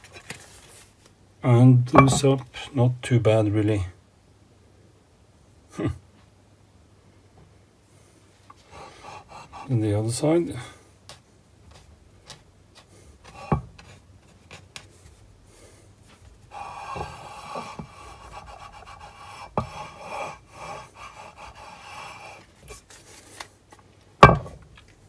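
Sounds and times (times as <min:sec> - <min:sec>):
metal part knocking on plate: 0:02.0 - 0:02.2
metal rubbing on metal plate: 0:13.2 - 0:14.0, 0:16.4 - 0:22.9.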